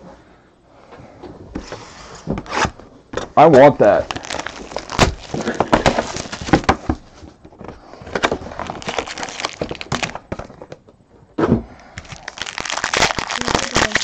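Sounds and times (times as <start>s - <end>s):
plastic wrap crinkling: 3.8s - 6.8s, 8.0s - 10.6s, 12.0s - 14.0s
box bumping: 4.6s - 11.7s.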